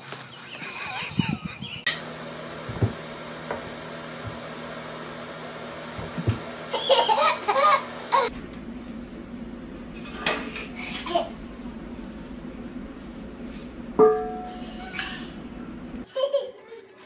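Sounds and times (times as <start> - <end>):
toddler laughing: 0.5 - 1.9, 6.7 - 8.3, 10.8 - 11.4, 14.5 - 15.4, 16.0 - 17.0
steady low hum: 1.1 - 16.0.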